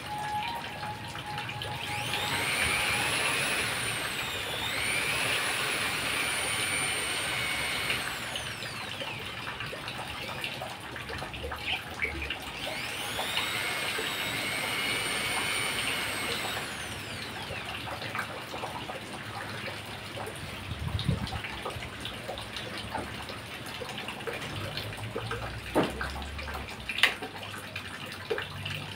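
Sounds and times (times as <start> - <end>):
electric drill motor whine: 0.0 - 10.4, 11.6 - 18.3.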